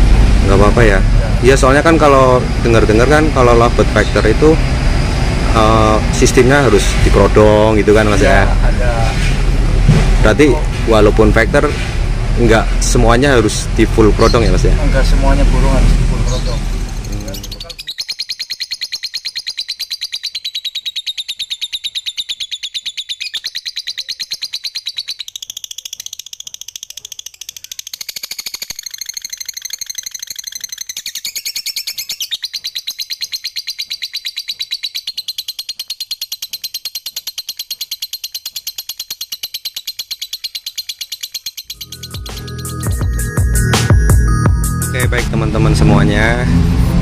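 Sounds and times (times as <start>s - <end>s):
bird chattering trill: 5.5s - 9.0s, 12.4s - 15.5s, 16.2s - 45.0s.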